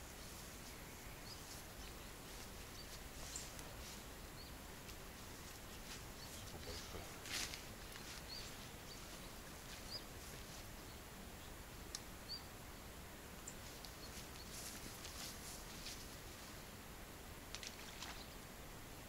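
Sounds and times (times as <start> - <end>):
light scratches or rustles: 0.0 - 4.1, 4.8 - 10.8, 13.5 - 16.6
faint bird chirps: 7.8 - 10.1, 12.2 - 12.6.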